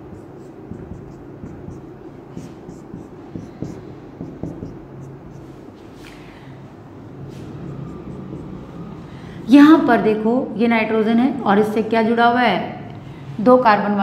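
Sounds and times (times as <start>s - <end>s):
marker scratching on whiteboard: 0.0s - 6.0s, 7.1s - 9.7s.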